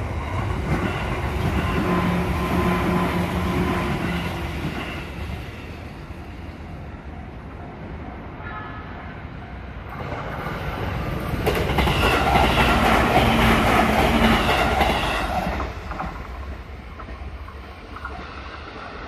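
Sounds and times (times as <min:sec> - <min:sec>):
train whine: 0:00.0 - 0:19.0
train wheels clattering over rail joints: 0:11.4 - 0:18.6.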